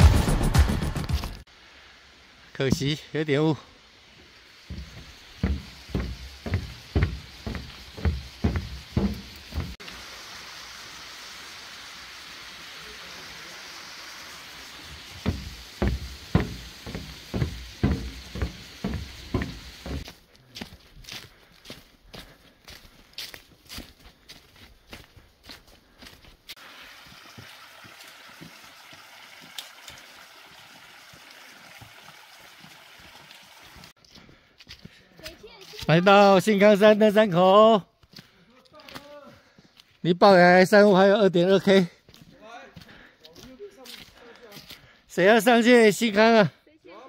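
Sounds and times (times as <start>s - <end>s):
steady hiss: 1.5s - 20.2s, 26.5s - 28.5s
footsteps thumping: 4.6s - 9.8s, 15.0s - 20.2s
stream water rushing: 4.6s - 20.0s, 26.6s - 33.9s
faint low knocks: 4.7s - 9.8s, 15.2s - 20.0s.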